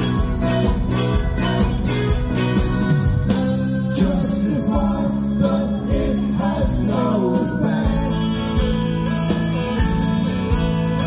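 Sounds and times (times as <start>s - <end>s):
drum kit beat: 0.0s - 11.0s
electric guitars: 0.0s - 11.0s
man singing: 3.3s - 8.6s.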